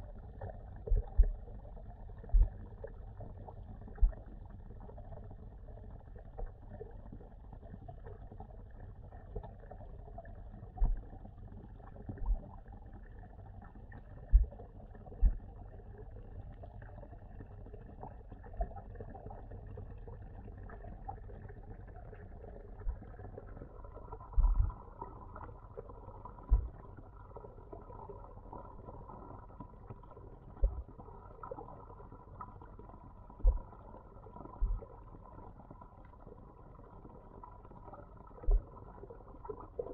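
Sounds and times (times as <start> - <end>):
faint steady hum: 0.0 - 39.9
low underwater rumble: 0.0 - 39.9
dull low thumps: 2.3 - 2.6, 14.3 - 14.5, 24.4 - 24.8, 26.4 - 26.8, 30.6 - 30.9, 33.4 - 33.7, 34.6 - 34.8.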